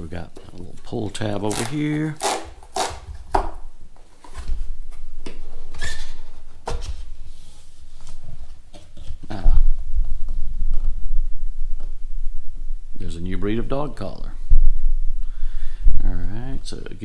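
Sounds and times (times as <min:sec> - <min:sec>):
cardboard tear strip ripping: 0:01.4 - 0:03.2.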